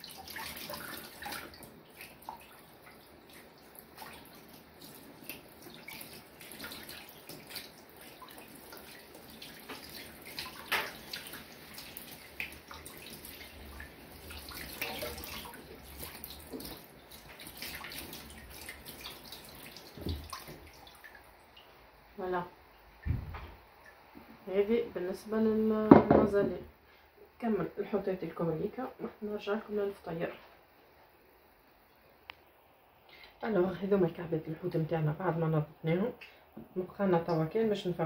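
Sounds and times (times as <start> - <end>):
tap water running into sink: 0.0 - 21.1
water splashes and small knocks: 0.0 - 21.8, 23.0 - 24.4, 25.9 - 26.6.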